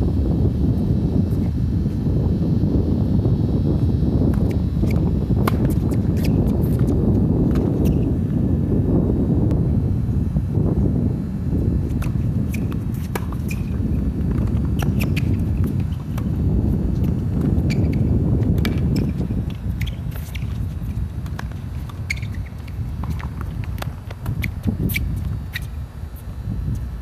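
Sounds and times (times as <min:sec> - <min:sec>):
wind buffeting microphone: 0:00.0 - 0:27.0
shoe squeaks on court: 0:04.3 - 0:08.1, 0:11.9 - 0:26.3.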